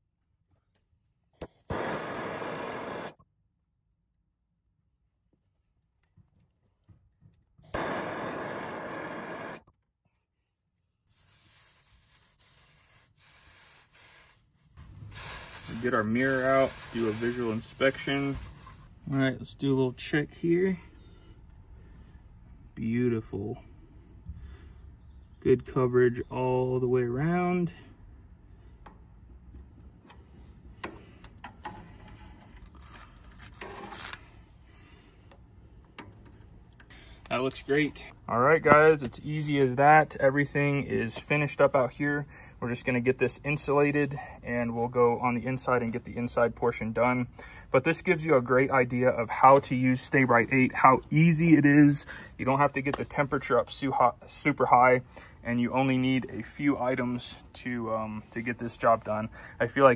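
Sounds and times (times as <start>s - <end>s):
gas torch hissing: 1.6s - 3.2s, 7.7s - 9.6s, 11.1s - 18.9s
faint steady hiss: 11.1s - 21.2s.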